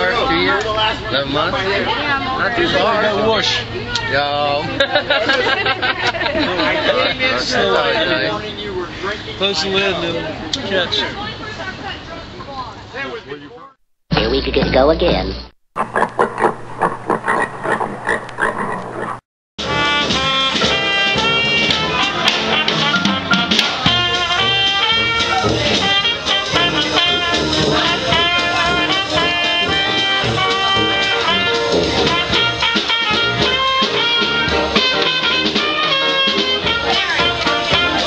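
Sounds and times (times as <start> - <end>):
dixieland jazz band with brass: 19.6 - 38.0.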